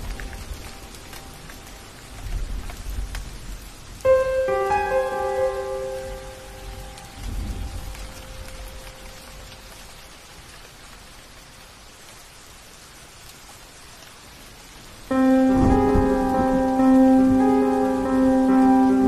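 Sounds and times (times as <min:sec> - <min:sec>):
rain hissing: 0:00.0 - 0:19.0
sustained musical notes: 0:04.1 - 0:08.0, 0:15.1 - 0:19.0
low thunder rumble: 0:05.9 - 0:09.4, 0:15.3 - 0:19.0.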